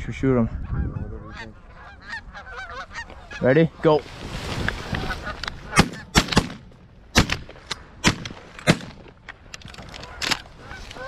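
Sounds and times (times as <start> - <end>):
shotgun shots: 5.7 - 9.1.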